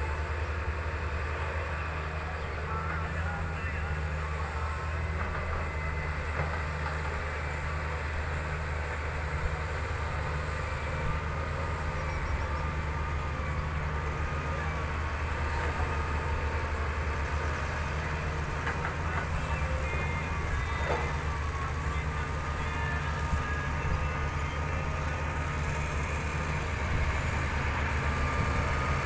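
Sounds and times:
excavator diesel engine drone: 0:00.0 - 0:29.0.

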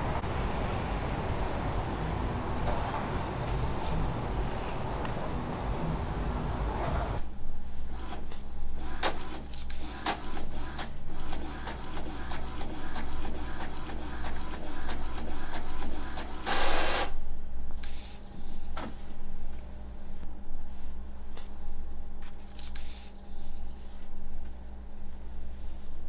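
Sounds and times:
inkjet printer clicking and whirring: 0:08.0 - 0:17.1.

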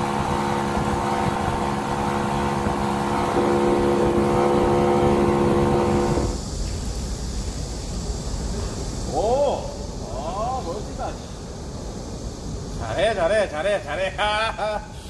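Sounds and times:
boat motor running: 0:00.0 - 0:06.4.

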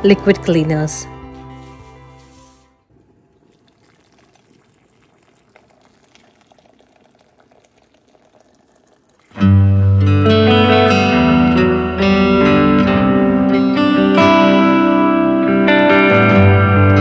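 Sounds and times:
water trickling into a bowl: 0:03.0 - 0:09.7
loud guitar music: 0:09.4 - 0:17.0.

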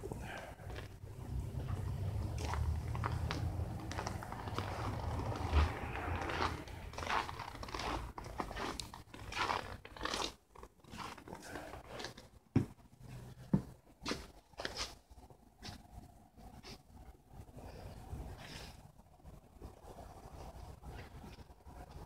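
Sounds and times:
footsteps crunching in snow: 0:02.2 - 0:12.1.

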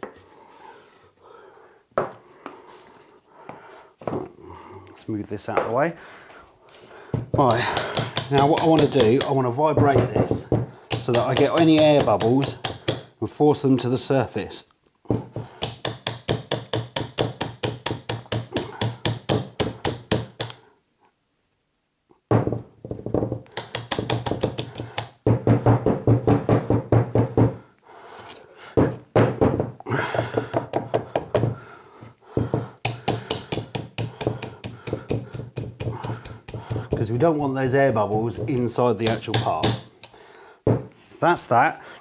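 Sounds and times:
plastic jug knocking on a tabletop: 0:22.3 - 0:24.6, 0:40.7 - 0:40.9.

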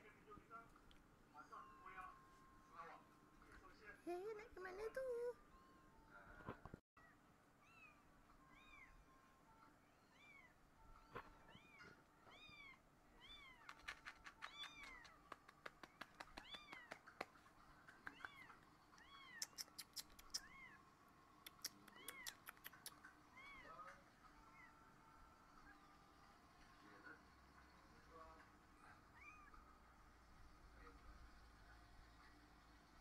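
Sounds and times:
sharp faint clicks: 0:13.5 - 0:20.6, 0:21.4 - 0:23.1
kitten mewing: 0:18.1 - 0:20.8, 0:21.5 - 0:23.8.

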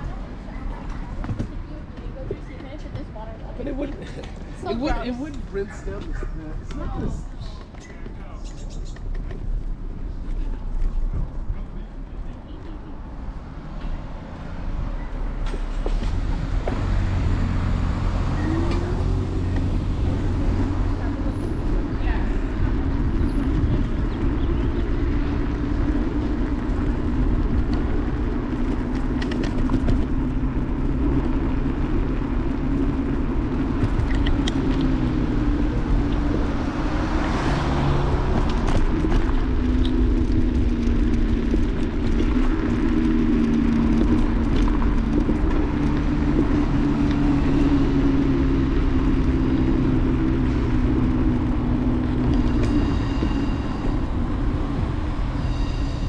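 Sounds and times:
tyres rumbling on asphalt: 0:00.0 - 0:56.0.

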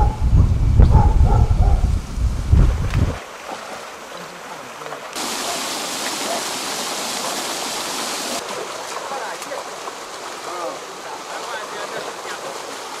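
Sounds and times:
wind on microphone: 0:00.0 - 0:03.2
aerator churning water: 0:02.7 - 0:13.0.

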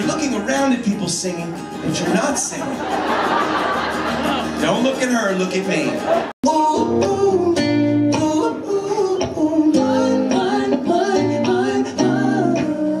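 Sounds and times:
acoustic guitar strumming: 0:00.0 - 0:12.8
person singing: 0:06.4 - 0:13.0.

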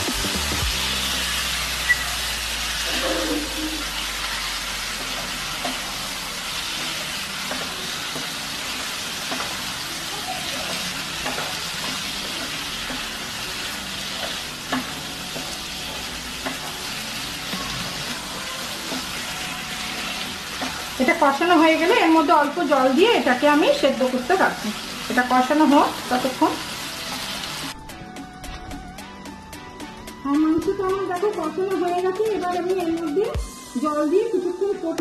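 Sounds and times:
chicken sizzling in a frying pan: 0:00.0 - 0:27.8
spatula scraping and knocking pan: 0:04.8 - 0:09.8, 0:10.5 - 0:21.2.

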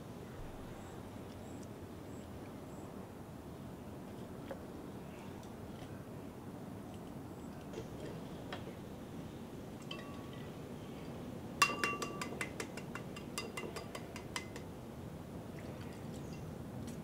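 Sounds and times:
egg clinking on ceramic bowl: 0:11.6 - 0:14.7.

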